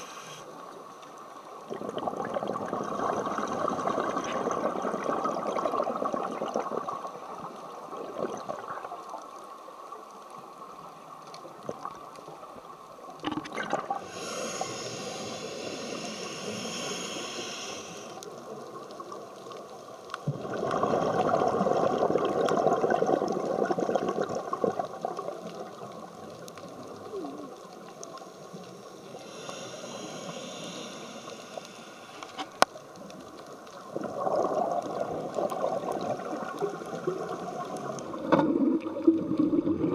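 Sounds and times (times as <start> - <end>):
regulator hissing inhalation: 0.0 - 0.5, 14.0 - 18.2, 29.1 - 32.6
burble of exhaled bubbles: 1.6 - 9.1, 13.2 - 14.1, 20.2 - 27.7, 33.7 - 39.9.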